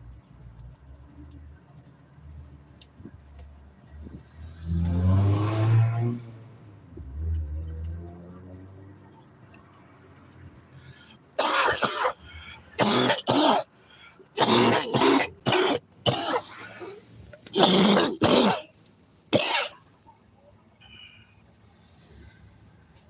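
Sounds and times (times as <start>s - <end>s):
man coughing: 11.4s - 12.2s, 12.8s - 13.7s, 14.4s - 16.6s, 17.5s - 18.7s, 19.4s - 19.8s.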